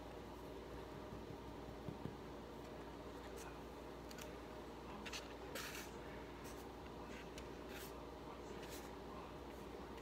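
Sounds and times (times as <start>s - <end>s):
low room hum: 0.0s - 10.0s
soft brushing: 4.9s - 9.9s.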